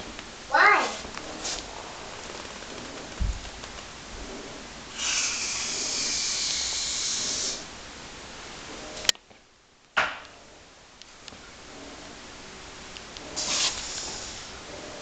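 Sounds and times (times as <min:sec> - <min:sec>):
loud high-pitched hiss: 0:04.9 - 0:07.9, 0:13.3 - 0:15.0.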